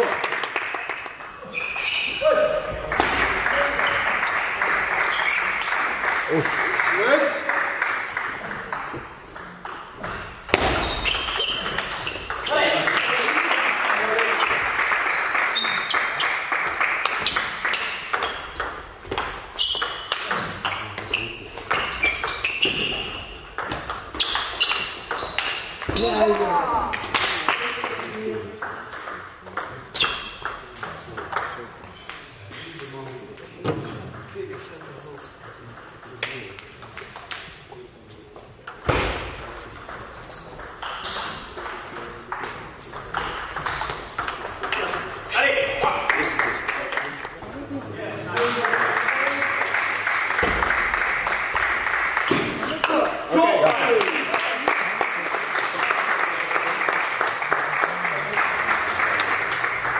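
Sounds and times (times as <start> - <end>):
ping pong ball hitting bats: 7.9 - 14.7, 15.4 - 37.6, 38.7 - 53.9
ball bouncing on table: 8.7 - 13.0, 17.1 - 23.0, 23.6 - 27.1, 38.7 - 45.2, 52.3 - 53.2
loud thump: 10.5 - 11.1.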